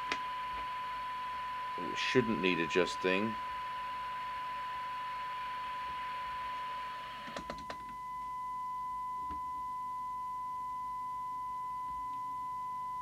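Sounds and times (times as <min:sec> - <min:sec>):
steady test tone: 0:00.0 - 0:07.0
radio hiss: 0:00.0 - 0:07.4.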